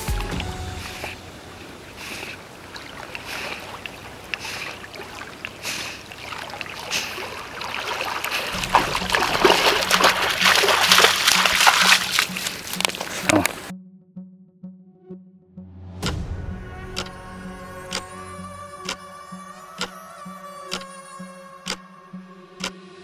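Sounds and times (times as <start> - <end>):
background music with low beat: 0.0 - 1.2, 8.6 - 23.0
footsteps on pebbles: 8.3 - 13.6.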